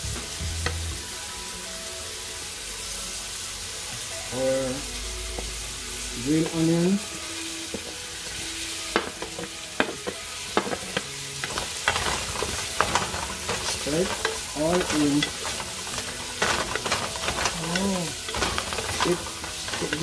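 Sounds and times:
vegetables sizzling in oil: 0.0 - 20.0
wooden spatula scraping a pan: 6.4 - 20.0.

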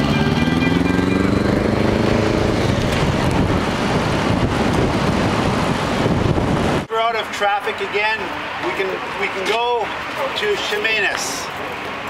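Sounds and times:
road traffic: 0.0 - 12.0
wind on microphone: 1.3 - 6.9.

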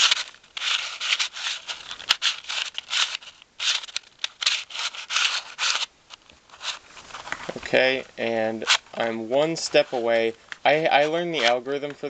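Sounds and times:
puzzle plastic clicks and scrapes: 0.0 - 7.6.

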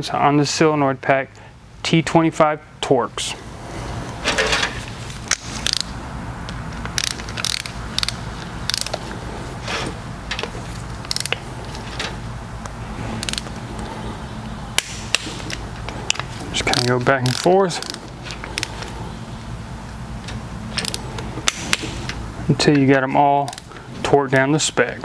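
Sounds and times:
ratcheting torque wrench clicking: 5.3 - 6.0, 6.8 - 9.1, 10.4 - 11.5, 13.2 - 13.6, 15.1 - 18.9, 20.7 - 22.2.

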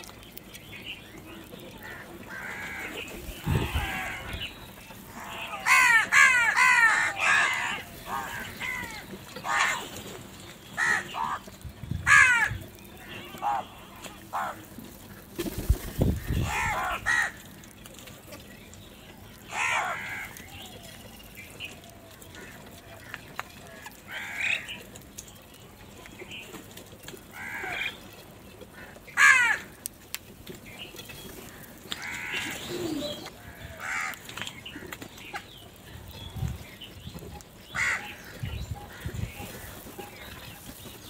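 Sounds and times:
crows cawing: 1.8 - 4.5, 5.1 - 10.0, 10.8 - 15.2, 16.2 - 17.6, 19.5 - 20.5, 22.3 - 24.8, 27.3 - 28.0, 28.7 - 29.8, 31.5 - 32.7, 33.4 - 34.6, 37.7 - 39.8.

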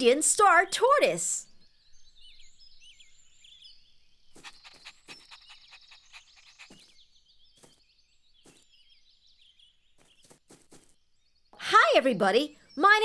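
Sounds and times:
birds chirping: 0.0 - 13.0.

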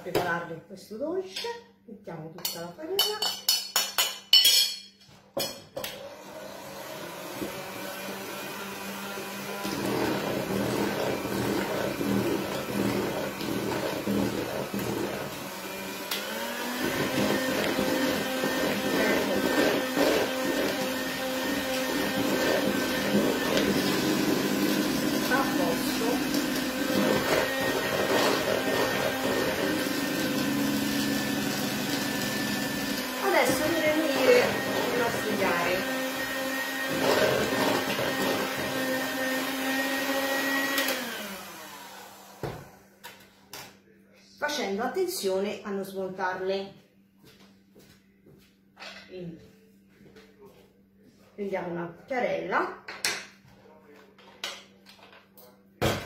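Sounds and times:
clink against a bowl: 3.0 - 5.0
electric hand mixer running: 5.9 - 42.8.

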